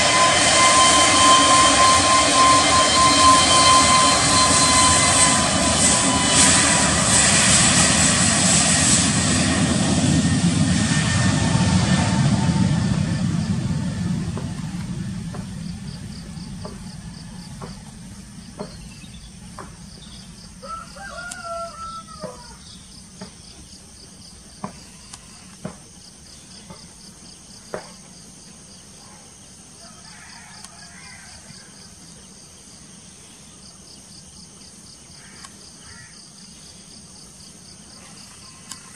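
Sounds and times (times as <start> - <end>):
jet engines rumbling: 0.0 - 28.4
insects chirping: 0.1 - 38.9
rooster crowing: 16.6 - 18.0, 20.4 - 22.8, 29.8 - 31.9.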